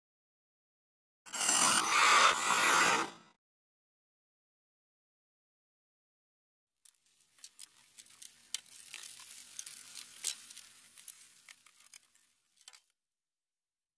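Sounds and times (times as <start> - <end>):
crackling fizzing hiss with clicks: 6.9 - 12.9.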